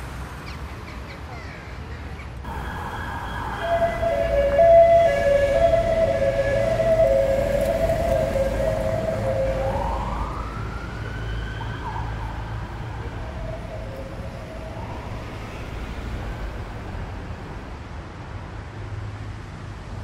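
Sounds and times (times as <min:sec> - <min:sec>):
low rumble of street traffic: 0:00.0 - 0:20.0
emergency vehicle siren wailing: 0:02.5 - 0:17.7.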